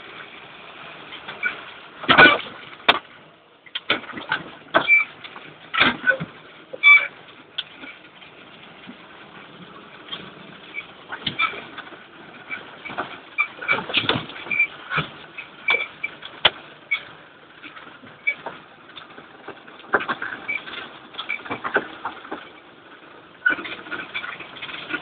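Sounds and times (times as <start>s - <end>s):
vehicle body knocks and rattles: 1.2s - 22.7s
short squeaks: 4.8s - 5.1s, 6.8s - 7.2s, 12.5s - 14.8s.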